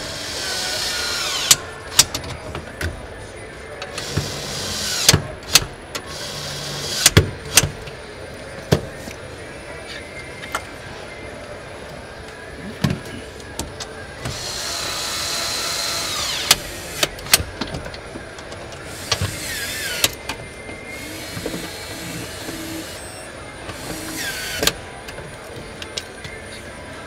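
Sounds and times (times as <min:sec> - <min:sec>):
power screwdriver running: 0:00.0 - 0:01.6, 0:14.3 - 0:17.1.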